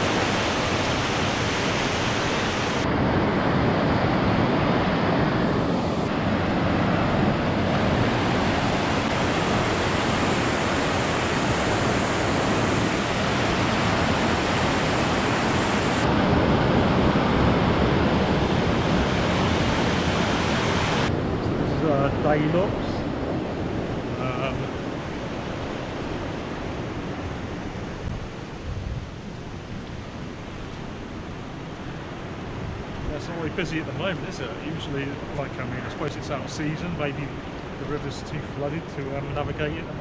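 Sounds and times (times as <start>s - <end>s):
water rushing through weir: 0.0s - 2.9s, 5.5s - 16.1s, 17.5s - 21.1s.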